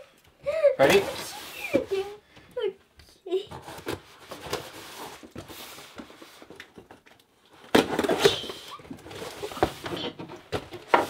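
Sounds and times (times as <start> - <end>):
paper and packing material rustling: 0.8 - 2.2, 3.5 - 6.6, 7.6 - 11.0.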